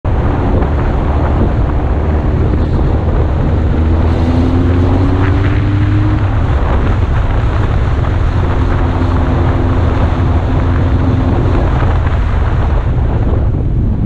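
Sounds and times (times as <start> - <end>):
motorcycle engine accelerating: 0.0 - 14.0
wind noise on microphone: 0.0 - 14.0.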